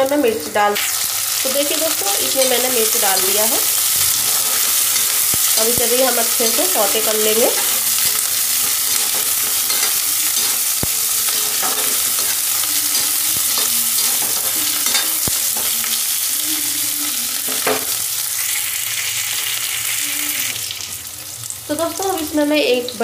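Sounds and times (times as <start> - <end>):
onions sizzling in hot oil: 0.0 - 23.0
metal spatula scraping pan: 1.7 - 16.0.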